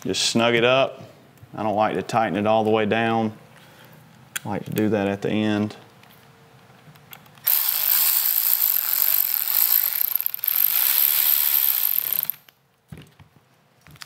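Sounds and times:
cordless electric ratchet running: 0:07.4 - 0:12.5.

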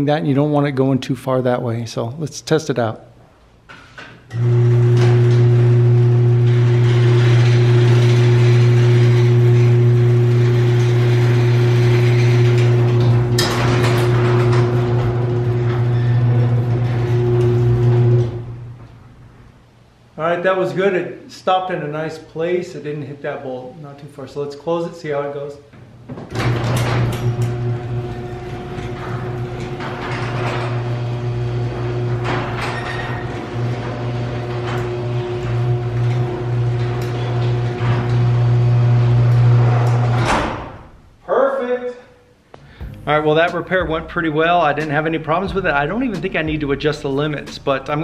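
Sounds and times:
garage door opener humming: 0:04.3 - 0:19.5, 0:26.1 - 0:41.2.

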